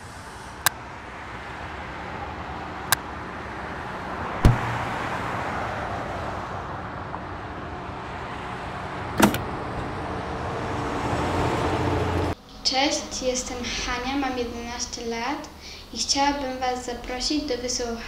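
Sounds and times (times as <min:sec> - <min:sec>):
heavy thud: 0:04.4 - 0:04.9.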